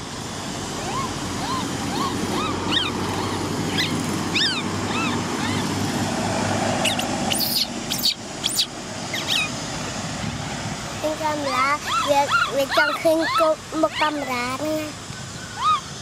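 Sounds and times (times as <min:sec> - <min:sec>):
baby monkey crying: 0:00.7 - 0:05.8, 0:06.8 - 0:09.6, 0:11.7 - 0:14.6, 0:15.5 - 0:15.9.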